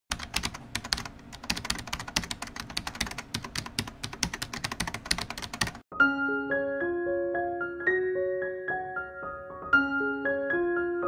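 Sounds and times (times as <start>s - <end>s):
typing on a keyboard: 0.1s - 5.8s.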